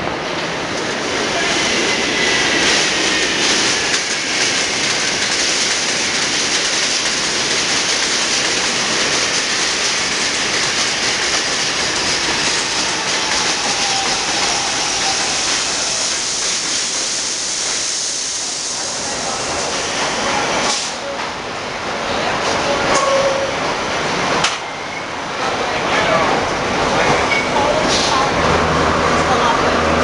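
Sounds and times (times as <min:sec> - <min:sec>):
subway train running past: 0:00.0 - 0:30.0.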